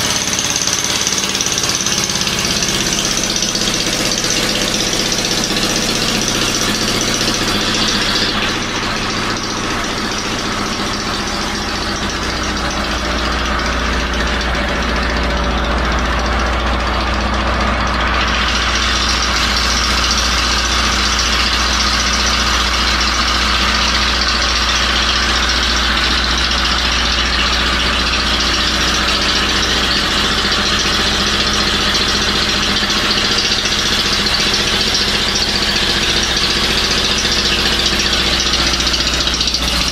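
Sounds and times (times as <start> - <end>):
portable generator engine idling: 0.0 - 39.9.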